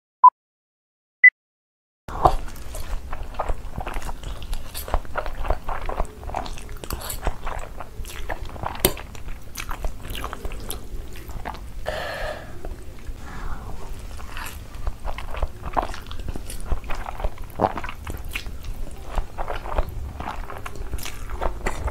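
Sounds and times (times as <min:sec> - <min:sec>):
slurping noodles: 0:02.1 - 0:21.9
wet chewing clicks and smacks: 0:02.3 - 0:11.8, 0:14.2 - 0:21.9.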